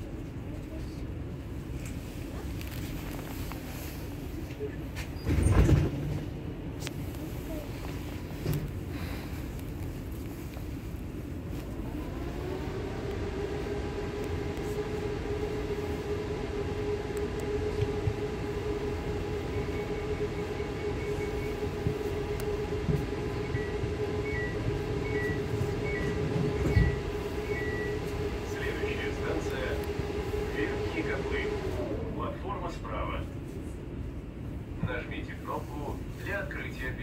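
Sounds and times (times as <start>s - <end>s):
train rumble: 0.0s - 37.0s
electrical whine: 11.5s - 33.0s.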